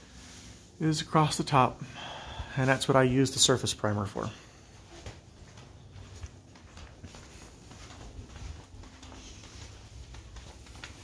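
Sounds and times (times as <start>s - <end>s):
footsteps on concrete: 4.1s - 11.0s.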